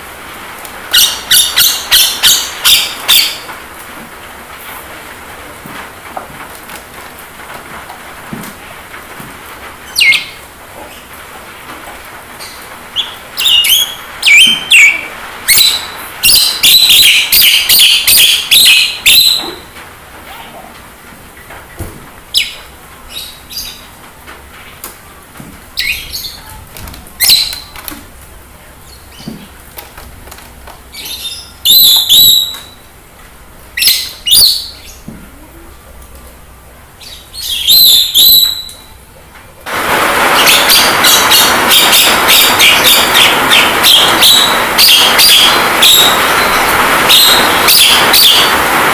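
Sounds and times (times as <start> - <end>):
myna bird calling: 0.9 - 3.5, 12.5 - 19.6, 40.3 - 48.6.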